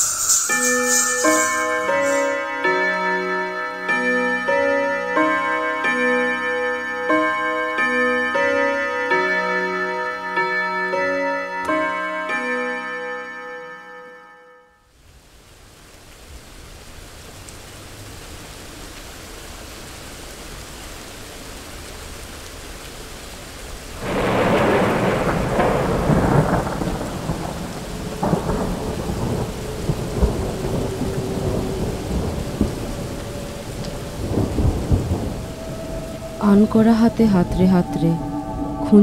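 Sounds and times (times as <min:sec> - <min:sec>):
steady rain: 0:00.0 - 0:08.7, 0:14.9 - 0:39.0
rolling thunder rumble: 0:23.9 - 0:39.0
loud thunderclap: 0:24.0 - 0:39.0.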